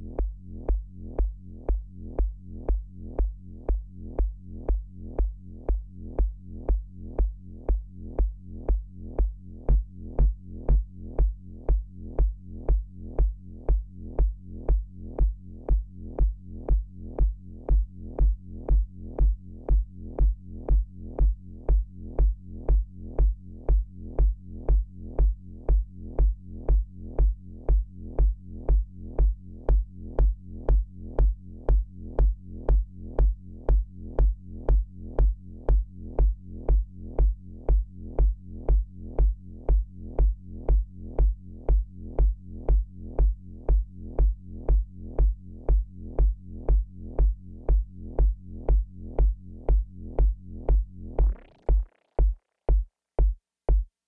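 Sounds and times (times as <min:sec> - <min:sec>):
synthesizer kick-like pulse: 0:00.0 - 0:54.0.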